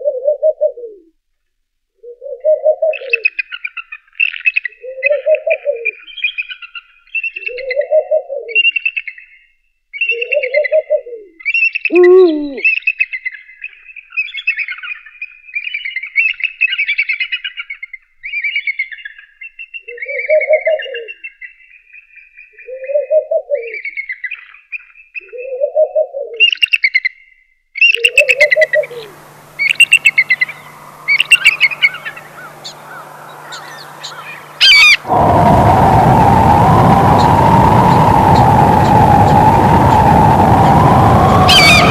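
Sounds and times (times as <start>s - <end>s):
owl hooting: 0.0s - 1.1s, 2.0s - 3.3s, 10.1s - 11.3s, 11.9s - 12.7s, 19.9s - 21.1s, 27.9s - 35.2s, 40.9s - 41.9s
high chirping bird calls: 27.8s - 35.1s, 41.2s - 41.9s
faint low hum: 28.4s - 41.9s
steady hiss: 28.6s - 41.9s.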